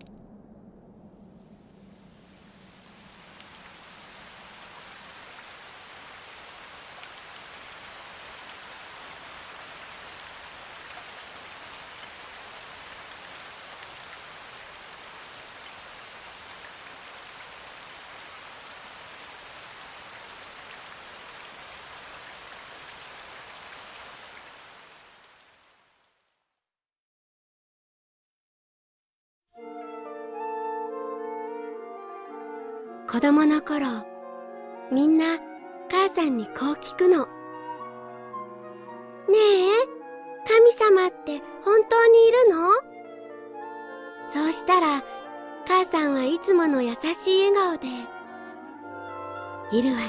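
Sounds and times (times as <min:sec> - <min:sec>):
steady rain: 0:00.0 - 0:26.4, 0:44.3 - 0:45.0, 0:45.6 - 0:48.0, 0:49.7 - 0:50.0.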